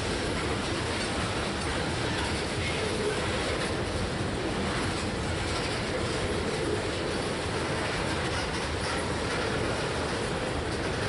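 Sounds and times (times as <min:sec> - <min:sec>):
freight train rolling past: 0:00.0 - 0:11.0.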